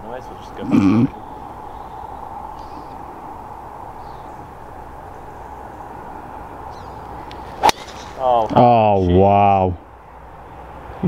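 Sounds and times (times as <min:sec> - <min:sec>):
low outdoor hiss: 0:00.0 - 0:11.0
faint bird chirps: 0:00.1 - 0:08.4.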